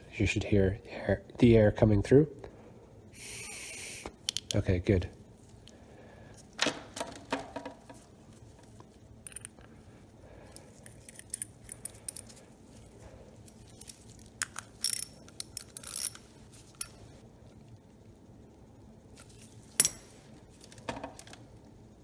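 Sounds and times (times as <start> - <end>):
small parts clicking and tapping: 4.3 - 4.6, 13.5 - 17.0.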